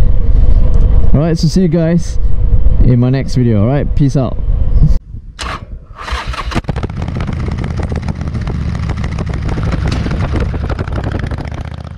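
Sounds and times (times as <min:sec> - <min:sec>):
motorcycle engine running: 0:06.0 - 0:11.9.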